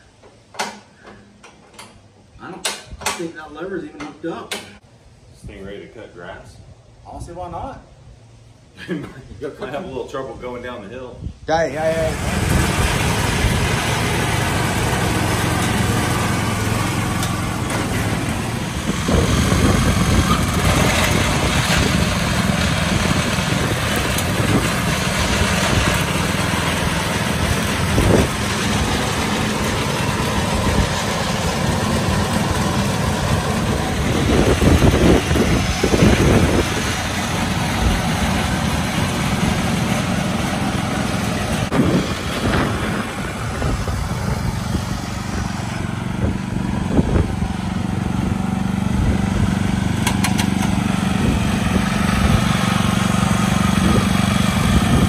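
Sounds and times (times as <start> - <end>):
riding mower engine running: 11.6 - 55.0.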